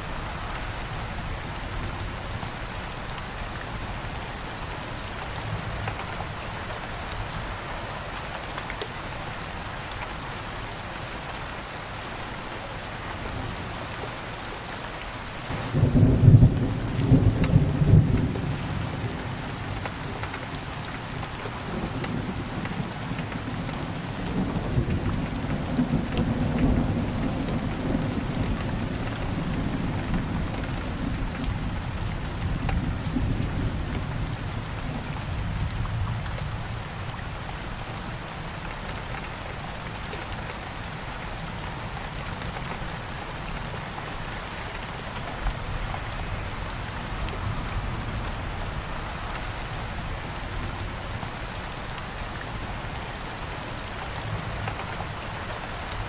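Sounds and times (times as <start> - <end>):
heavy rain on window glass: 0.0 - 56.0.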